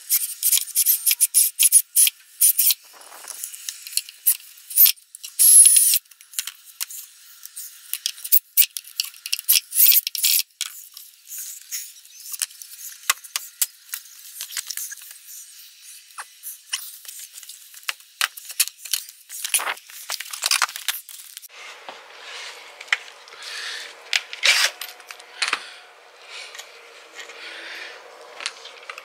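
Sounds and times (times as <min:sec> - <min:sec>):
hiss with high squeak: 0:00.0 - 0:03.6, 0:04.2 - 0:06.0, 0:09.5 - 0:17.3
scraping and rubbing: 0:18.4 - 0:29.0.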